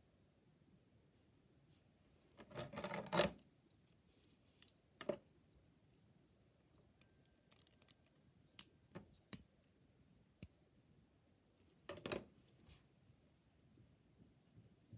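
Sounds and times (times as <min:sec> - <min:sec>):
plastic pieces clicking: 0:07.5 - 0:08.7.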